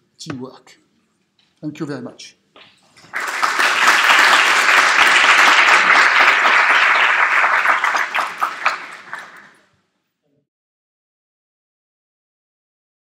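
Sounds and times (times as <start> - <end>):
audience applauding: 3.0 - 9.6.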